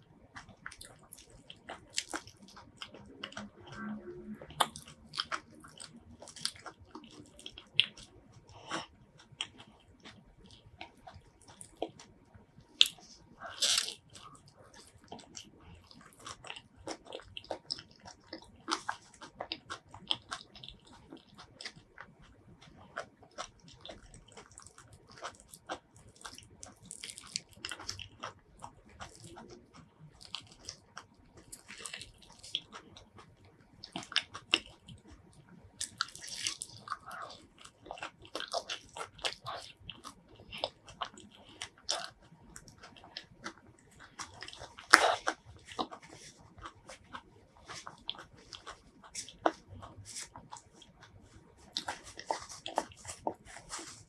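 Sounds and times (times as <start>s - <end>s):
wet chewing and mouth smacks: 0.3s - 54.0s.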